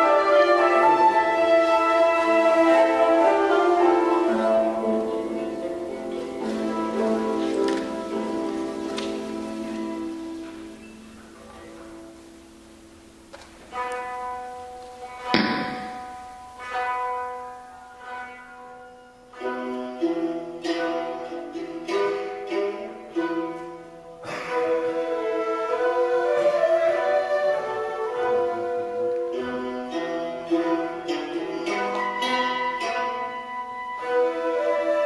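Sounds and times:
plucked string instruments: 0.0s - 35.0s
bamboo flute held tones: 24.2s - 29.9s.

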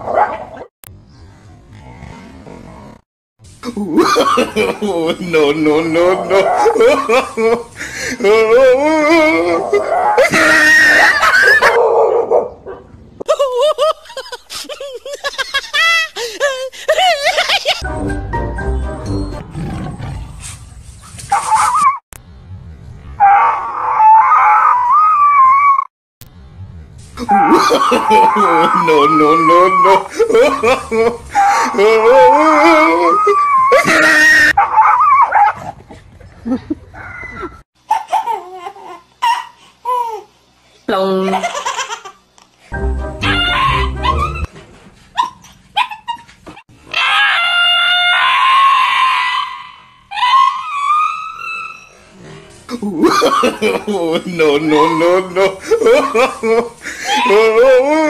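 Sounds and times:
dog yelping and screaming: 6.2s - 7.2s, 9.5s - 12.5s, 21.3s - 22.0s, 23.2s - 25.9s, 31.3s - 35.7s, 43.2s - 44.5s, 45.2s - 52.2s, 54.7s - 56.3s, 56.9s - 57.6s
dog howling: 23.2s - 25.9s, 46.9s - 52.1s.

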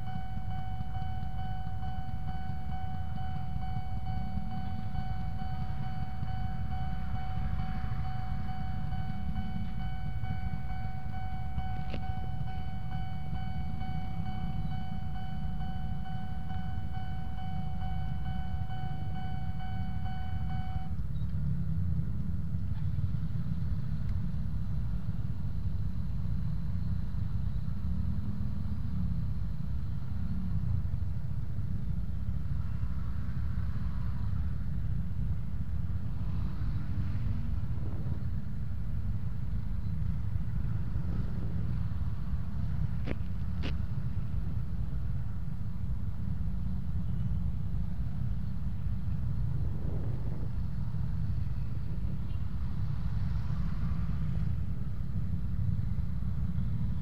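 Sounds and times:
level crossing warning tone: 0.0s - 21.0s
motorcycle engines idling: 0.0s - 25.8s
traffic rumble: 0.0s - 57.0s.

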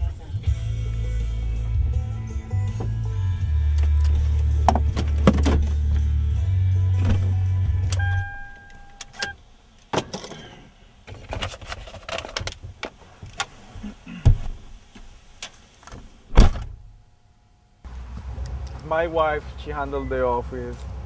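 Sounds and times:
vehicle engine running: 0.0s - 8.6s
car door slam: 4.7s - 5.8s, 7.0s - 7.4s, 16.3s - 16.9s
electronic beep: 8.0s - 9.4s
thump: 16.3s - 16.8s.

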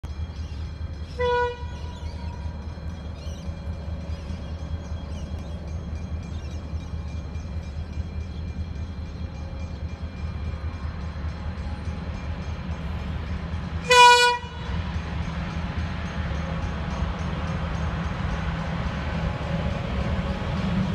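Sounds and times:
locomotive rumble: 0.0s - 20.9s
locomotive horn blast: 1.2s - 2.2s, 13.8s - 14.8s.

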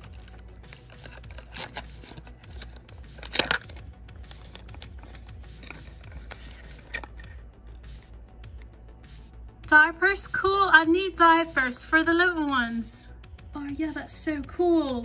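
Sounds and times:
plastic wrapper tearing and crinkling: 0.0s - 7.4s.

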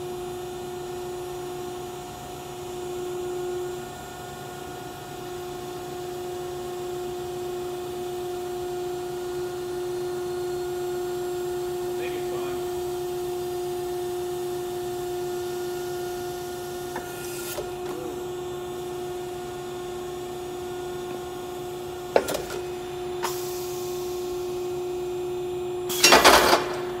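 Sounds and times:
machine humming: 9.3s - 27.0s.

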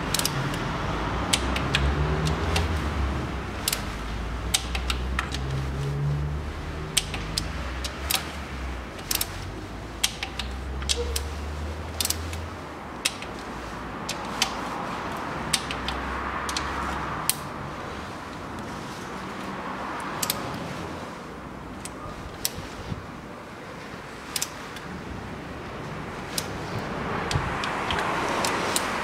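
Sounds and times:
torque wrench clicking: 0.0s - 0.7s, 1.3s - 3.0s, 3.6s - 6.2s, 6.8s - 17.5s, 20.0s - 20.5s, 24.3s - 24.9s, 26.3s - 29.0s.

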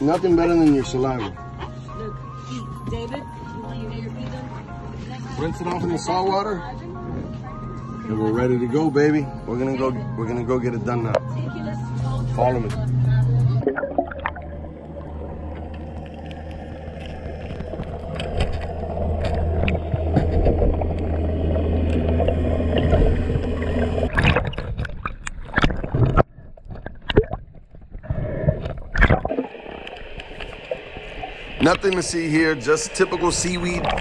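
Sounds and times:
boat motor drone underwater: 0.0s - 34.0s
underwater bubbling and gurgling: 13.5s - 34.0s.

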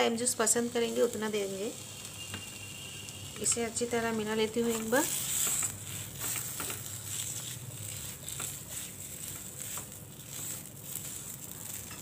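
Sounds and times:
oil sizzling in a pan: 0.0s - 12.0s
spoon scraping mashed potato: 4.6s - 12.0s.

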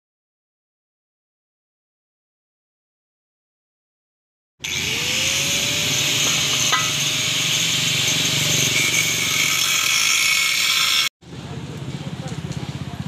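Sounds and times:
rising machine tone: 4.6s - 9.0s.

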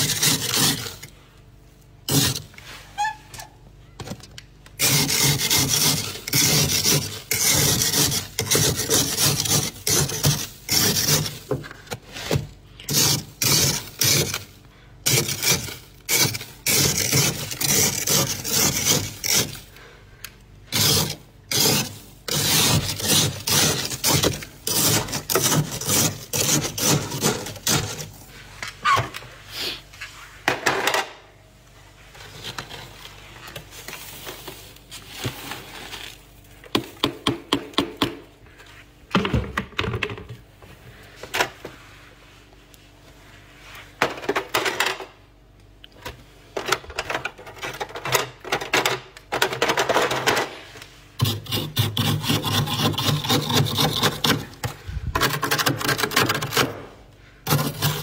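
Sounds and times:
utensil scraping freezer frost: 0.0s - 1.4s, 2.0s - 3.6s, 4.7s - 30.2s, 31.9s - 37.3s, 50.1s - 58.0s.

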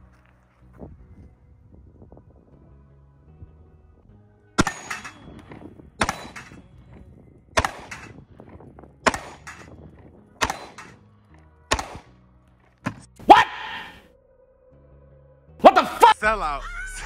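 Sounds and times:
pistol shots: 4.6s - 11.1s, 11.7s - 12.2s.

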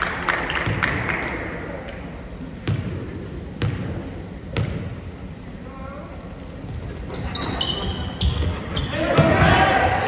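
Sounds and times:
background gym noise: 0.0s - 10.0s
basketball bouncing on gym floor: 2.6s - 5.1s, 7.4s - 9.8s.

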